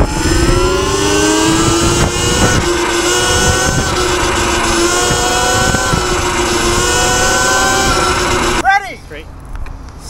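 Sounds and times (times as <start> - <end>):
electric motor whining: 0.0 - 8.6
wind rumble on microphone: 0.0 - 8.6.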